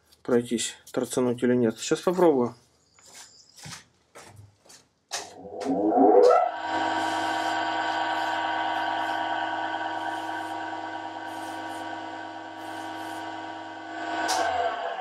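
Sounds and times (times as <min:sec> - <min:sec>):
bench grinder whining: 0:05.4 - 0:15.0.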